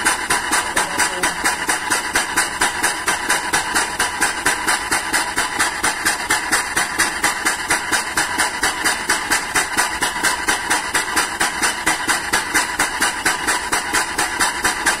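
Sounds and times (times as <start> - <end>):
diaphragm pump rhythmic hissing: 0.0 - 15.0.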